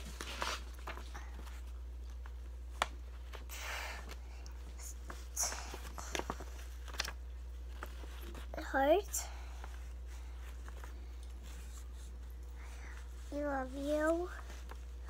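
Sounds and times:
paper rustling and clicks: 5.6 - 8.4.

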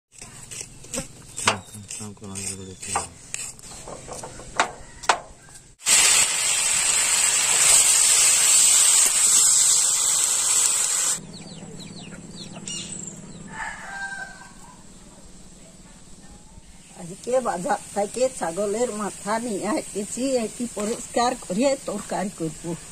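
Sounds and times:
sharp clicks and scrapes: 0.1 - 5.8
meat sizzling in a pan: 5.8 - 11.2.

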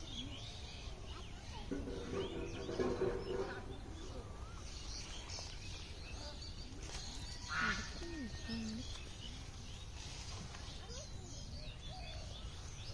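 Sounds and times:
small birds chirping: 0.0 - 12.9.

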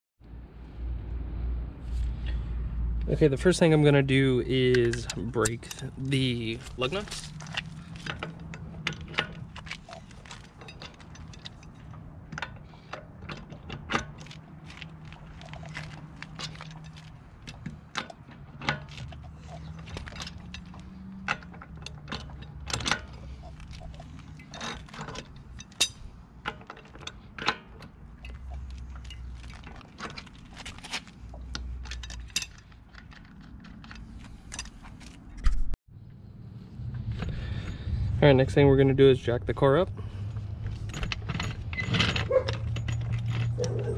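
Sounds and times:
socket clinking on lug nuts: 40.8 - 43.9.

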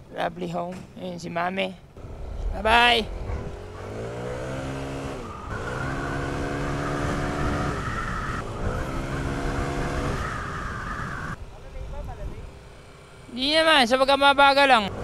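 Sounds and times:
road and wind noise: 0.0 - 15.0
scooter engine accelerating: 2.0 - 11.4.

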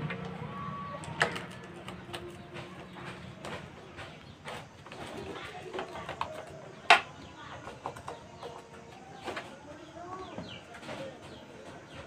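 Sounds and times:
faint bird calls: 0.0 - 5.7.

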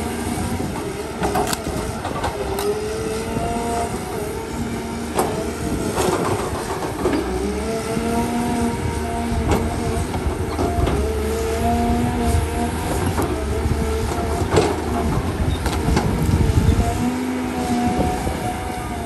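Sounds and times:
excavator hydraulics whining: 0.0 - 19.0
sharp cracks and clanks: 1.2 - 2.8.

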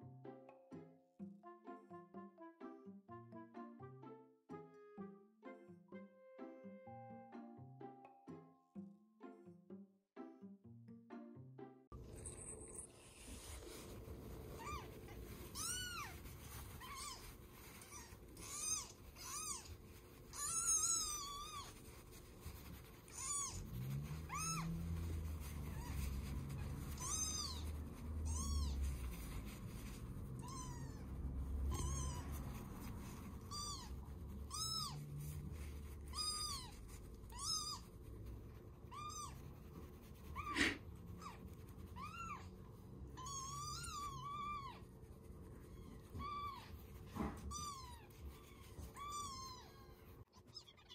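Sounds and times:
kitten mewing: 30.4 - 32.6, 40.3 - 42.4.

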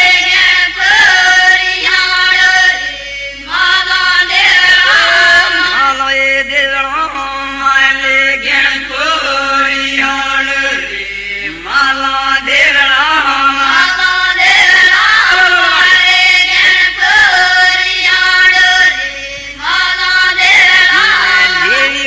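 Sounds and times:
men chanting a devotional song: 0.0 - 22.0.

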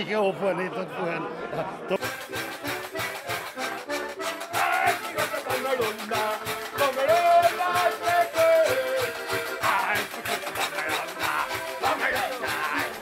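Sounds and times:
button accordion: 1.9 - 13.0
jingling rattling percussion: 2.0 - 13.0
person singing: 4.5 - 13.0.

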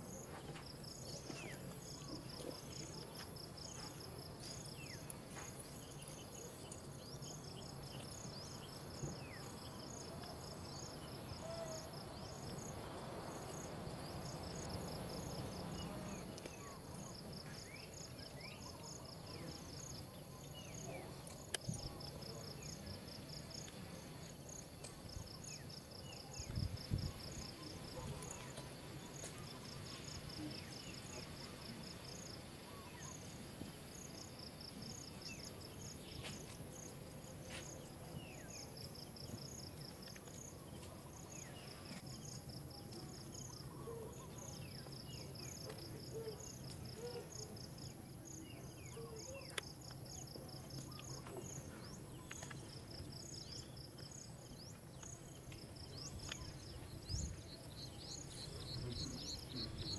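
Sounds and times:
insects chirping in pulse trains: 0.0 - 59.9.

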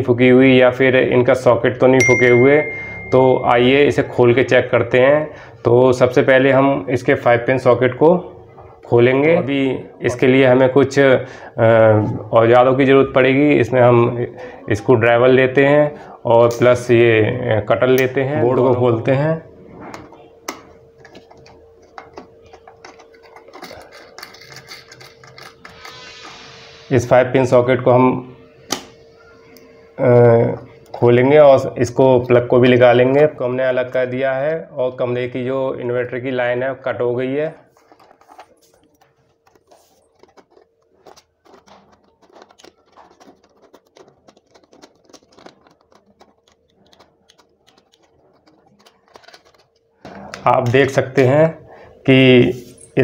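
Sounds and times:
screwdriver clicks and scrapes: 19.9 - 26.4, 37.8 - 49.8.

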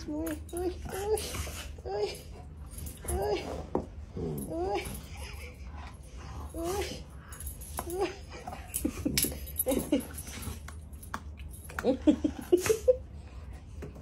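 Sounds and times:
dog whining and grumbling: 0.0 - 10.6.

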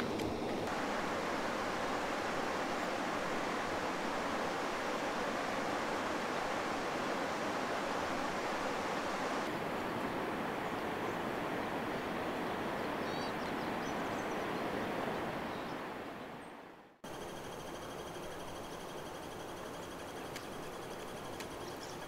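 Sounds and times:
steady hiss: 0.0 - 9.5
creek rushing: 0.0 - 16.3.

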